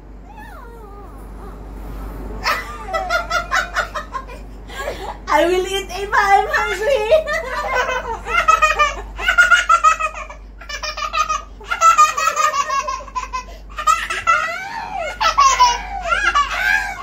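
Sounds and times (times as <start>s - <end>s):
toddler laughing: 2.4s - 5.0s, 7.3s - 17.0s.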